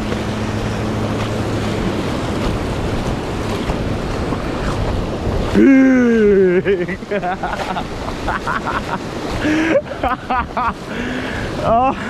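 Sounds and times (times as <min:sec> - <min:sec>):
ocean surf breaking: 0:00.0 - 0:12.0
wind buffeting microphone: 0:00.0 - 0:12.0.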